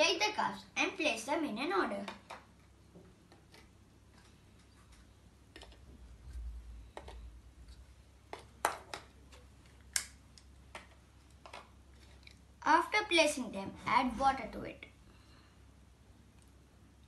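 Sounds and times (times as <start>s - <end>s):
plastic cups clicking on table: 5.5s - 5.9s, 6.9s - 7.3s, 8.3s - 10.1s, 10.7s - 11.8s.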